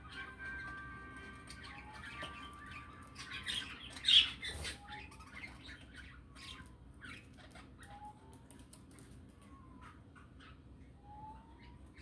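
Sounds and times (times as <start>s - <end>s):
budgerigars chirping and chattering: 0.0s - 12.0s
whistled bird notes: 0.1s - 8.5s, 9.4s - 12.0s
bird squawk: 1.5s - 8.4s.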